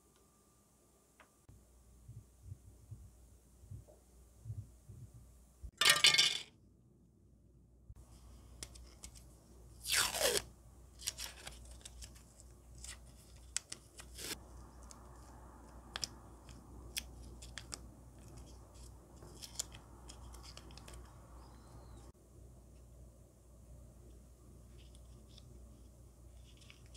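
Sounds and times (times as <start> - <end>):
tape crinkling and ticking: 11.0 - 21.2.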